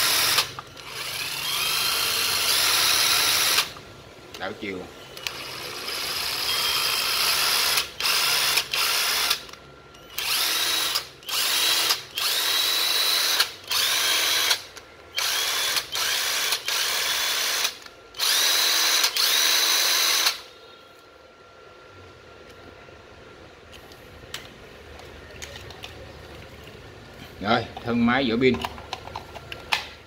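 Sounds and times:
cordless drill motor whining: 0.0 - 3.8, 5.2 - 20.6.

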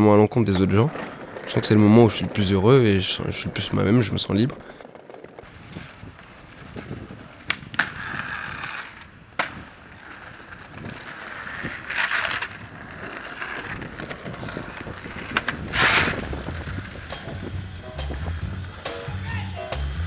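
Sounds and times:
skateboard wheels rolling on stone: 0.0 - 20.0
rushes of noise: 1.0 - 18.8
skateboard clacks: 4.5 - 19.8.

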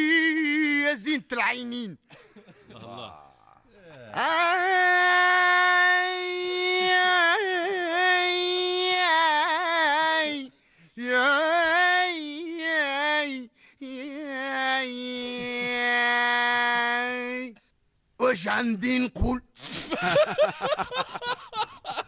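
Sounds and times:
man singing unaccompanied: 0.0 - 1.3, 4.1 - 17.6.

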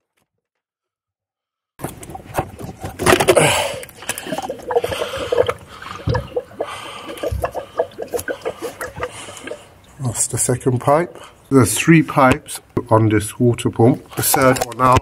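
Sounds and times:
coolant splashing out: 1.8 - 9.7
plastic fitting clicking and scraping: 14.2 - 15.0.

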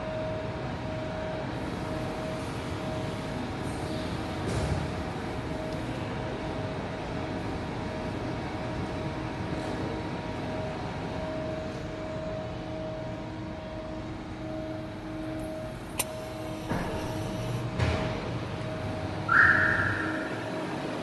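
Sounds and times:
background hum with held tone: 0.0 - 21.0
sharp click: 15.9 - 17.6.

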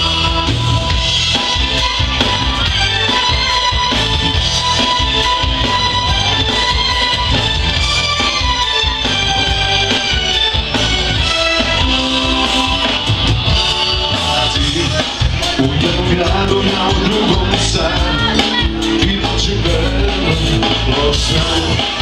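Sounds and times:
person singing: 0.0 - 3.6, 11.9 - 22.0
live band playing pop music: 0.0 - 22.0.

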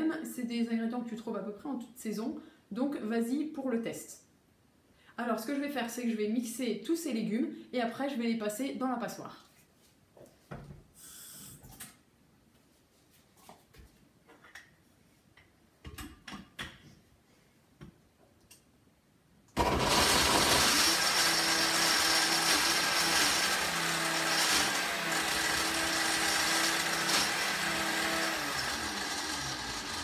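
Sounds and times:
blender running: 19.6 - 30.0.

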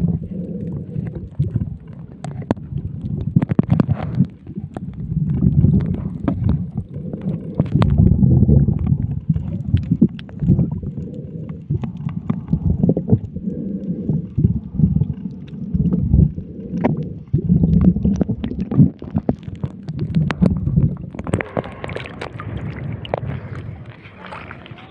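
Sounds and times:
muffled underwater rumbling: 0.0 - 24.9
water splashing at surface: 16.8 - 24.9.

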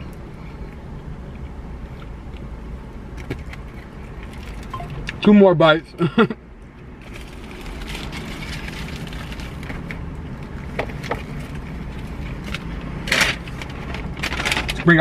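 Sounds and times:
car cabin hum: 1.6 - 5.8.

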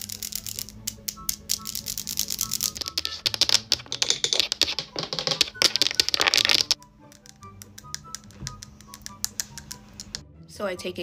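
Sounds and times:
long nails tapping: 0.0 - 10.2
quiet background music: 0.0 - 11.0.

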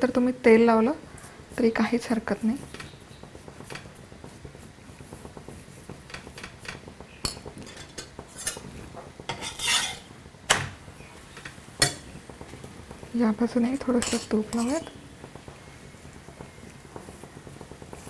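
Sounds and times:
metal spoon scraping and tapping: 6.0 - 10.1, 13.8 - 15.5.

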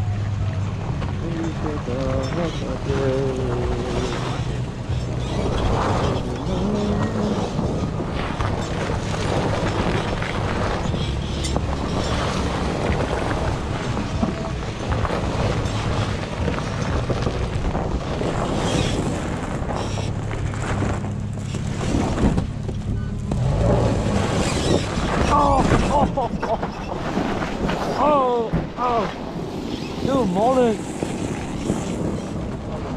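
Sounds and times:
truck engine running: 0.0 - 26.3
wind on microphone: 0.0 - 32.9
tyre noise: 3.5 - 32.9.

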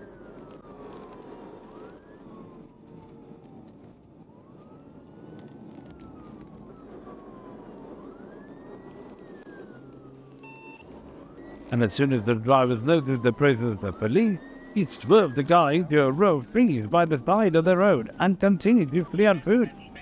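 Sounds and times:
police siren wailing: 0.0 - 20.0.

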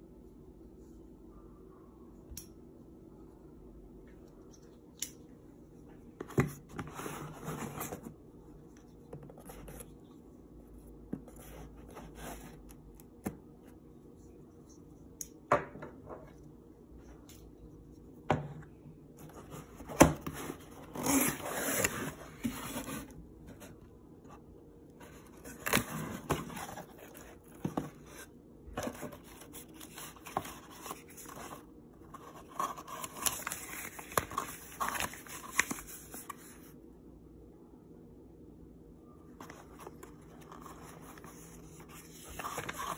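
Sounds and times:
cardboard and paper rustling: 6.2 - 10.3, 11.1 - 13.4, 19.2 - 23.8, 25.0 - 36.7, 39.4 - 42.9.

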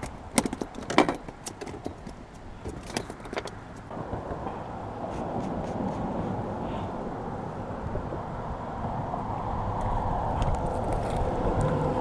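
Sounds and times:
fishing gear clicking and rattling: 0.0 - 3.9
steady rushing noise: 3.8 - 12.0.

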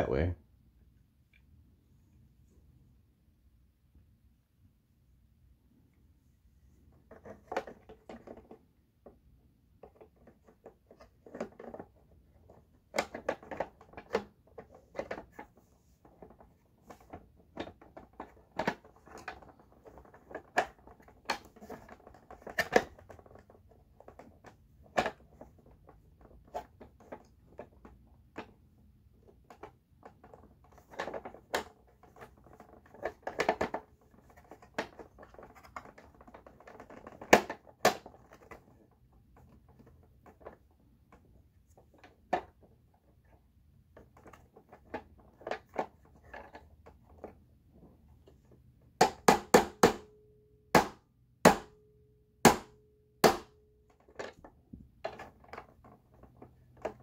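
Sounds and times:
plastic parts clicking and scraping: 6.9 - 8.7, 9.7 - 49.0, 53.9 - 57.0.

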